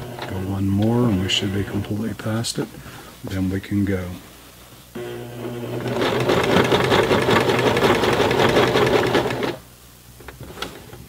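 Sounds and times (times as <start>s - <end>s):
sewing machine stitching: 5.0s - 9.6s.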